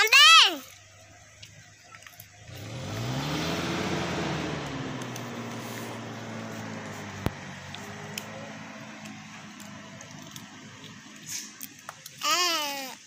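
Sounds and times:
vehicle driving past: 2.4s - 11.4s.

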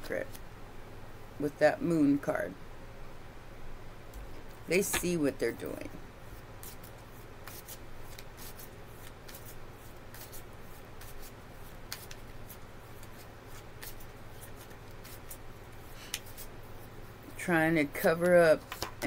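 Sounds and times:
cards being shuffled: 6.6s - 10.4s, 11.0s - 16.5s, 18.6s - 19.0s.

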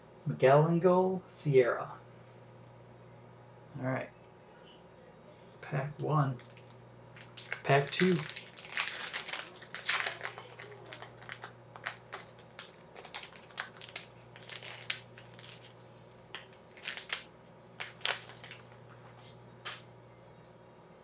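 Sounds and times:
card pack wrapper crinkling: 6.4s - 18.8s.

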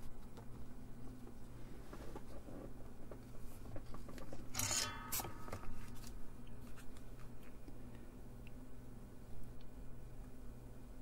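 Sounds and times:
low steady hum: 0.0s - 11.0s
scraping rattle of tools: 4.5s - 5.4s.

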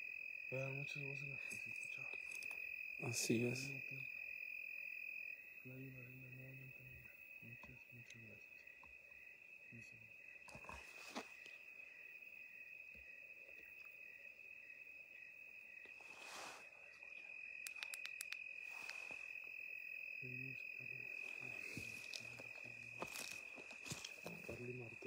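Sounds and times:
night insects trilling: 0.0s - 25.0s
light clicks: 17.6s - 19.0s.

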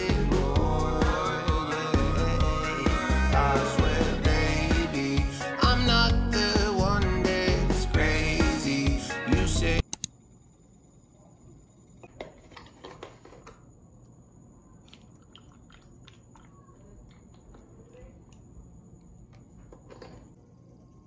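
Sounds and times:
milk pouring into cup: 14.8s - 17.6s.

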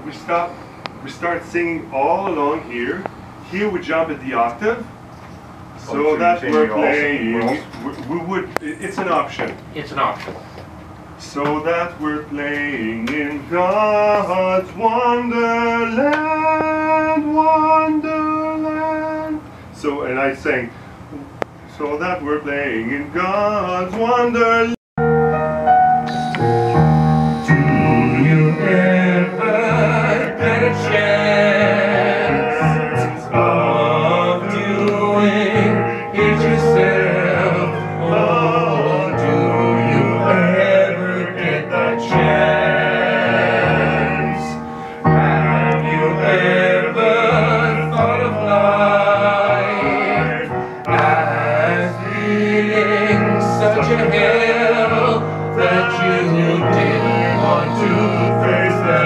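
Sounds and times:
piano chords: 25.0s - 59.0s
voices singing opera: 26.1s - 59.0s.

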